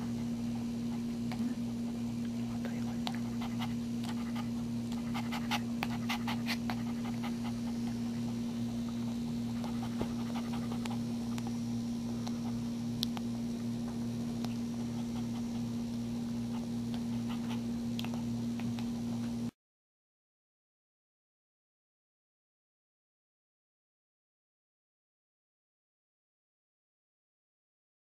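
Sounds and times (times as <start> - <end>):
steady electrical hum: 0.0 - 19.6
dog panting: 0.2 - 11.6, 14.6 - 19.2.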